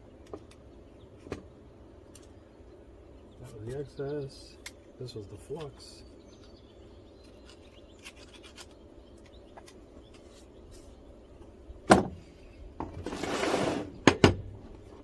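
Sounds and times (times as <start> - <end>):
tool scraping: 13.0 - 14.0.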